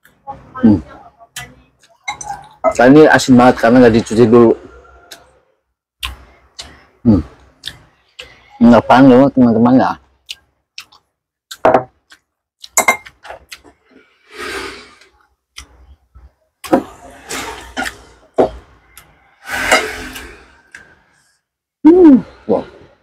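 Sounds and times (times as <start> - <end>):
chewing and crunching: 10.2 - 13.9.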